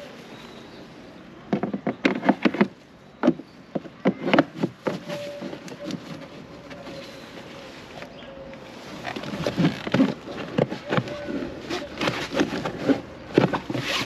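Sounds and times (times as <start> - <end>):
hard plastic clicking and knocking: 1.5 - 6.2.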